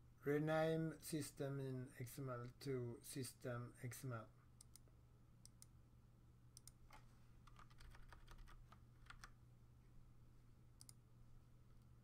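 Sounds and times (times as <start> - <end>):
computer keyboard keystrokes: 6.6 - 9.4.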